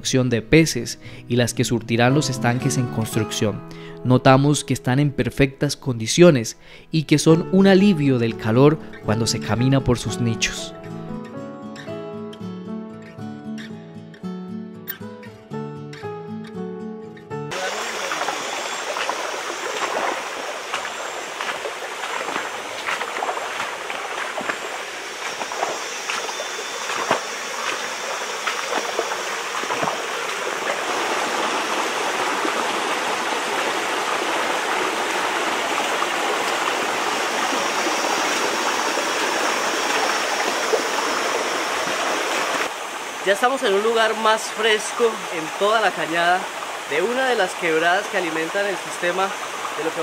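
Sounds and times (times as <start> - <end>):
footsteps on wet stones: 17.5 - 31.5
creek splashing over rocks: 17.5 - 50.0.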